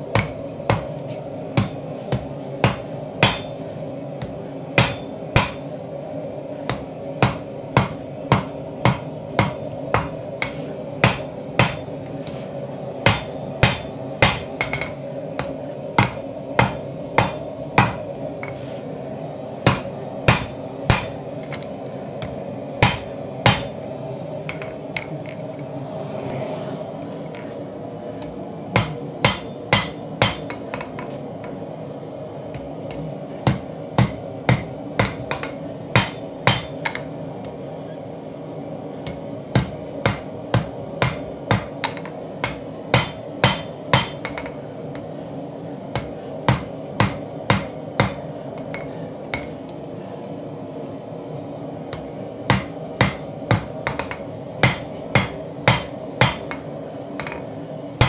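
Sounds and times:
hammer striking steel on anvil: 0.0s - 3.6s, 4.2s - 5.8s, 6.6s - 12.2s, 13.0s - 18.6s, 19.6s - 23.9s, 28.7s - 31.6s, 32.5s - 37.2s, 39.0s - 45.1s, 45.9s - 49.7s, 51.9s - 57.5s.

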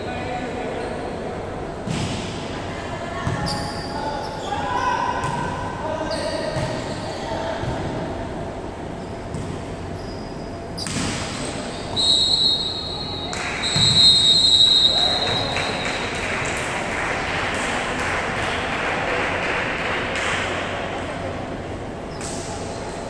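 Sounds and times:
referee's whistle blasts: 11.9s - 15.8s.

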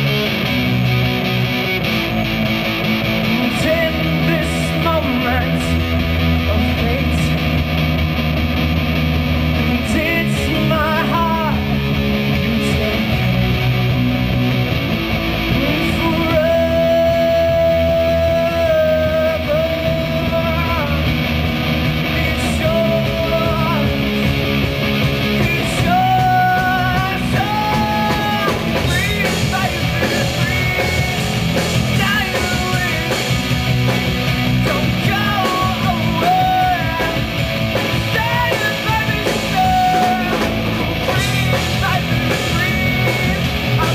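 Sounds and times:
live band playing: 0.0s - 43.9s
man singing: 3.2s - 7.5s, 9.6s - 13.6s, 15.4s - 21.2s, 22.0s - 24.4s, 25.3s - 43.9s.

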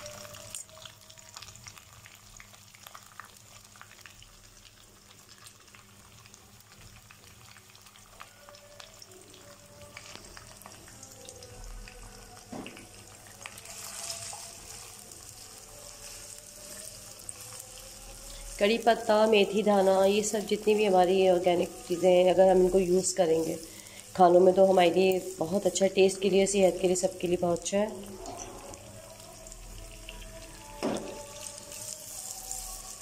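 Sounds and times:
onions sizzling in oil: 0.0s - 33.0s.

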